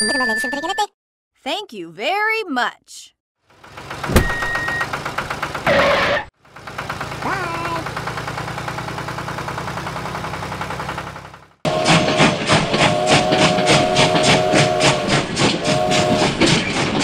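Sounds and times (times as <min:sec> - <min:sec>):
tractor engine chugging: 0:03.5 - 0:17.0.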